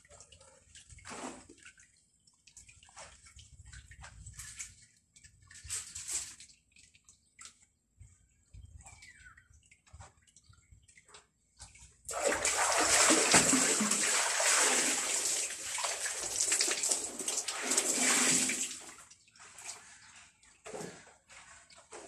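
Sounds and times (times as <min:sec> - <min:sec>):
water splashing onto floor: 0:11.7 - 0:20.0.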